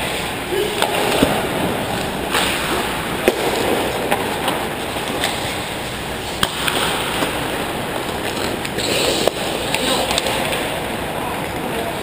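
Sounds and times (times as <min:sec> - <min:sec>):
hockey sticks and puck clacking: 0:00.0 - 0:12.0
skate blades scraping ice: 0:02.0 - 0:10.8.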